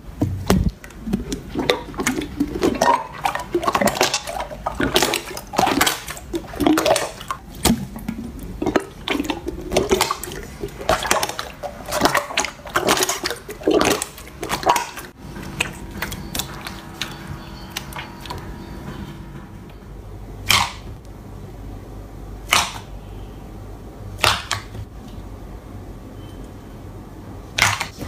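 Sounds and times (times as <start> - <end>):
slime squishing: 0.1 - 19.0.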